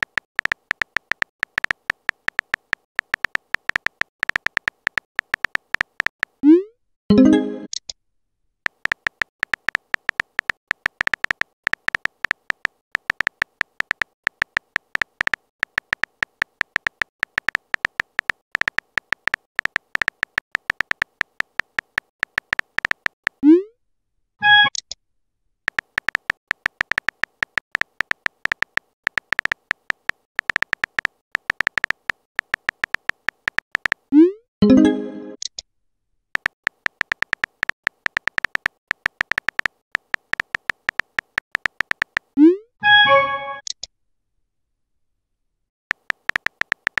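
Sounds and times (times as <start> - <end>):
phone keyboard typing clicks: 0.0 - 6.5, 8.7 - 23.4, 25.7 - 34.2, 36.4 - 42.4, 45.9 - 47.0
rising pop message tone: 6.4 - 7.7, 34.2 - 35.4
bright chirp message tone: 7.1 - 7.7, 34.6 - 35.4, 42.8 - 43.6.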